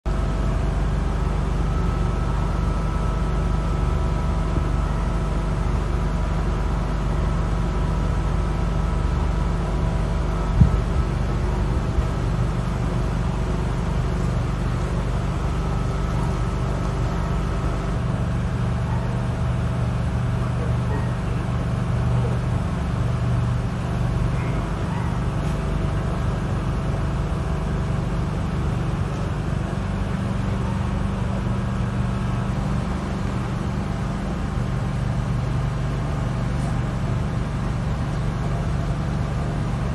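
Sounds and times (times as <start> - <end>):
low mechanical hum: 0.1 - 39.9.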